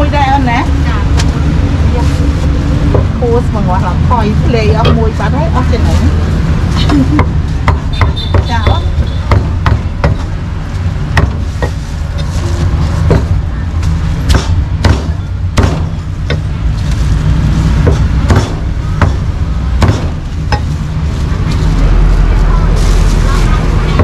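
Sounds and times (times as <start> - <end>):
low rumble: 0.0 - 7.7.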